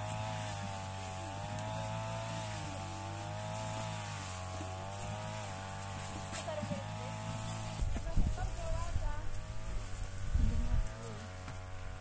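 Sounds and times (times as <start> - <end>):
small motor running: 0.0 - 12.0.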